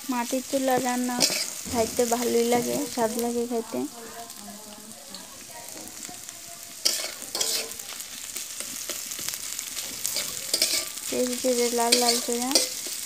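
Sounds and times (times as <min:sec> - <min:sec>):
onions sizzling in hot oil: 0:00.0 - 0:13.0
metal spatula scraping pan: 0:00.7 - 0:03.2, 0:06.8 - 0:07.9, 0:08.6 - 0:13.0.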